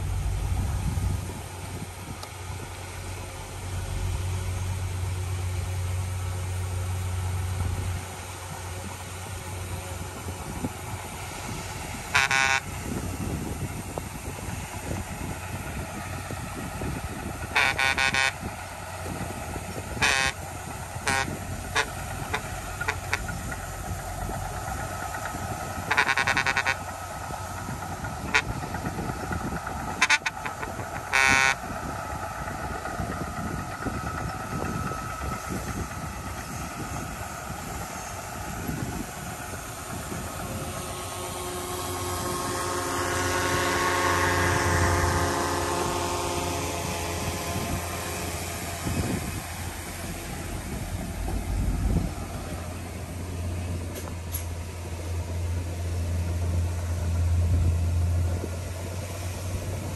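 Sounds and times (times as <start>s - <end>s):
engine revving under load: 0.0s - 59.9s
heavy diesel engines rumbling: 0.0s - 59.9s
vehicle horn toots: 12.1s - 13.0s, 17.5s - 18.5s, 20.0s - 23.5s, 25.8s - 26.9s, 28.2s - 28.7s, 29.9s - 31.7s.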